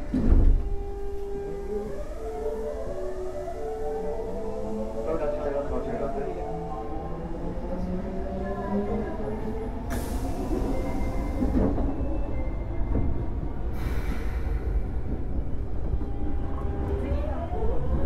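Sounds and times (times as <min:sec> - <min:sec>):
train wheels rumbling on rail: 0:00.0 - 0:18.0
hiss: 0:13.7 - 0:14.8.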